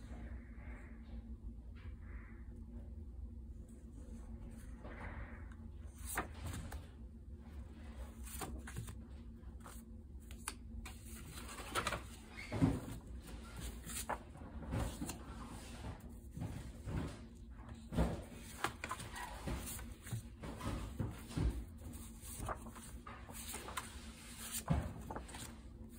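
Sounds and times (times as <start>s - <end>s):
paper cards shuffled on table: 8.1s - 9.0s, 9.6s - 25.9s.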